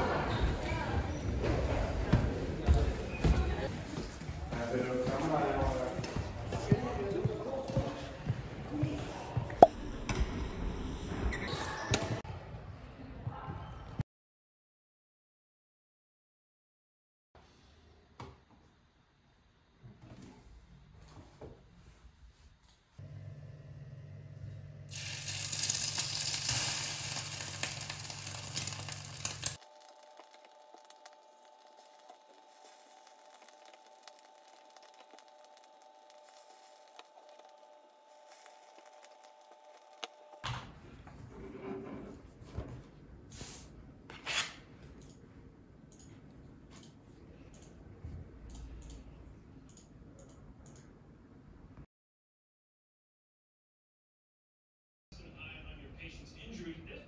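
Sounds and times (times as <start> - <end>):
food sizzling in a pan: 24.9 - 39.1
thin steady whine: 29.5 - 40.5.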